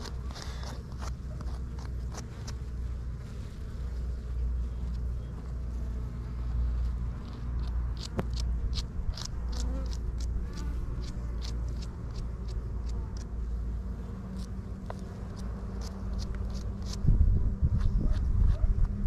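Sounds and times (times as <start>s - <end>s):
bees buzzing: 0.0s - 17.4s
wind on microphone: 16.8s - 19.0s.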